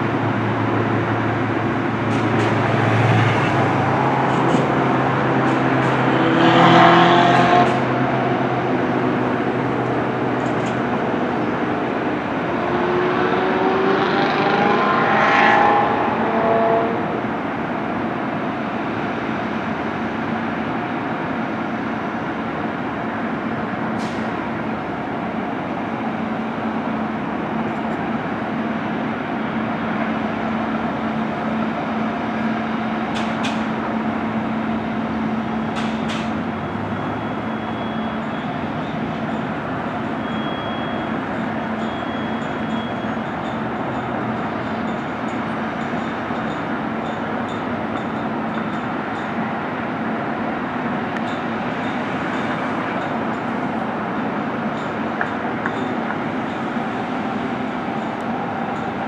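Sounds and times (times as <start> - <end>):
vehicle passing by: 0.0 - 10.4, 11.0 - 17.4
vehicle traffic noise: 0.0 - 59.0.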